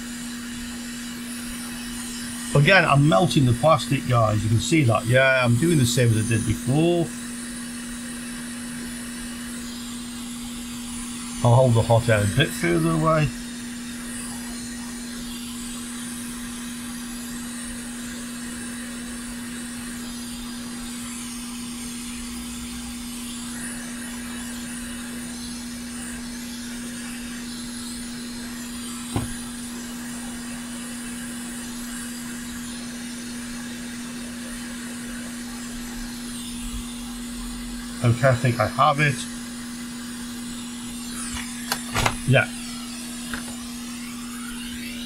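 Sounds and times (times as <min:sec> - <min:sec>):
hot air station blowing: 0:00.0 - 0:45.0
short tap: 0:29.1 - 0:29.4.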